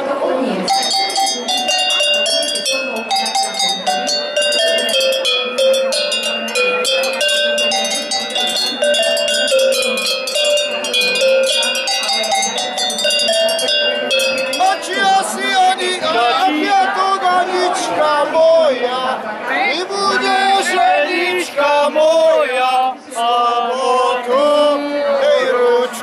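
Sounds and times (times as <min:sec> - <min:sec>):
cowbells struck playing a tune: 0:00.6 - 0:16.4.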